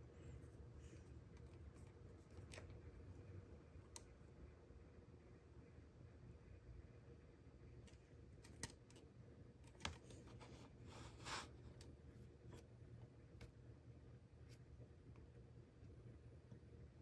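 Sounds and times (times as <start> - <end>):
brief rub on tabletop: 10.4 - 11.6.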